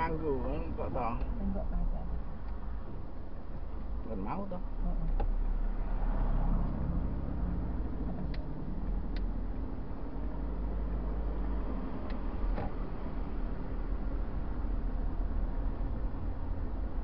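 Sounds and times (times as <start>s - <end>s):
car engine and road rumble: 0.0s - 17.0s
faint light ticks: 9.1s - 9.3s.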